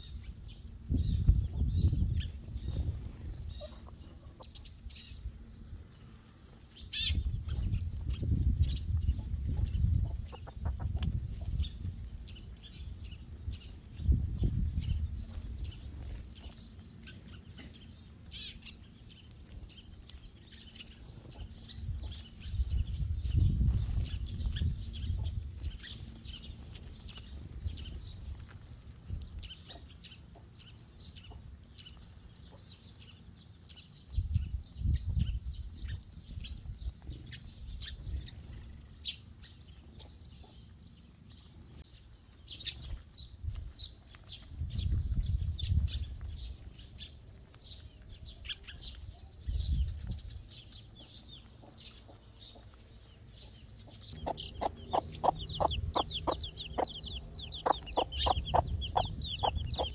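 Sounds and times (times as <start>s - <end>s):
sparrows chirping: 0.0s - 59.9s
low rumble: 54.0s - 59.9s.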